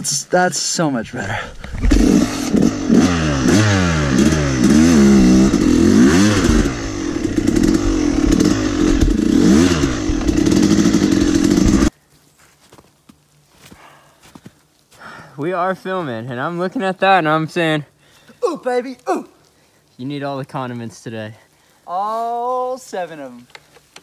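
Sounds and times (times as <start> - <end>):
dirt bike engine revving: 1.8 - 11.9.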